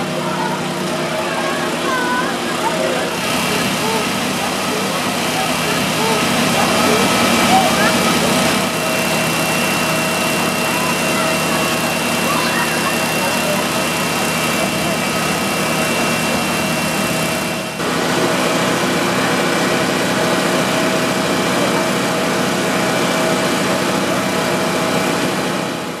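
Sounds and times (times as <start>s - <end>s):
whining tone: 0.0s - 17.8s
emergency vehicle engines idling: 0.0s - 26.0s.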